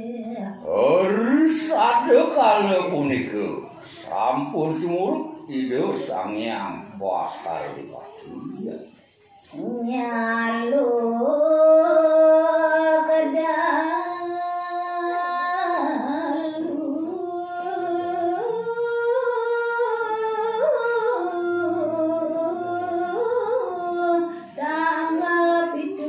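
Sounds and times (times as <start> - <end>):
woman singing unaccompanied: 0.0 - 0.6, 8.9 - 26.0.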